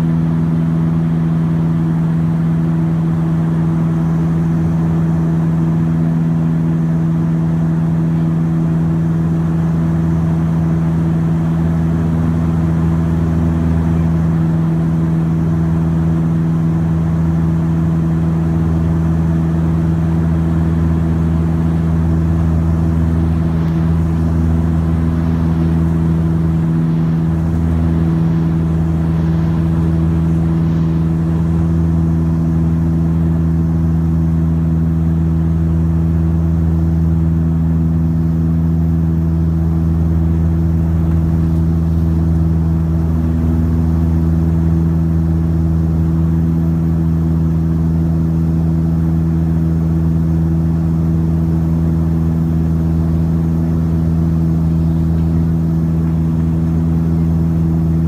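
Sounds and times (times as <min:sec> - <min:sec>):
propeller drone in cabin: 0:00.0 - 0:58.0
deep engine throb: 0:18.7 - 0:45.9.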